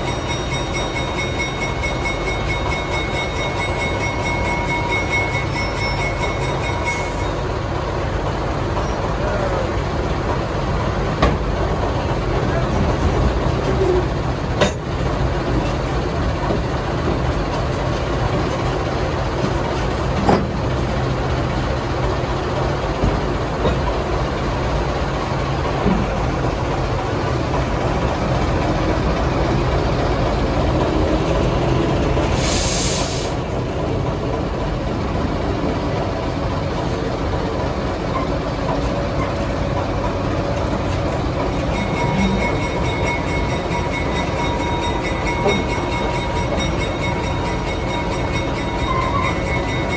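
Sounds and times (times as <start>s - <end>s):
diesel locomotive engine running: 0.0s - 49.9s
air hiss: 32.3s - 33.4s.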